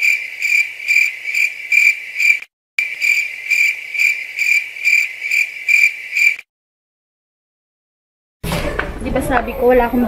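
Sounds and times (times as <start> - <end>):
cricket chirping: 0.0 - 6.4.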